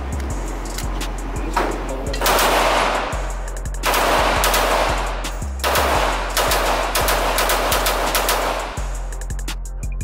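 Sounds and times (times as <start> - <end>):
background music with low beat: 0.0 - 10.0
rapid pistol fire: 2.2 - 9.0.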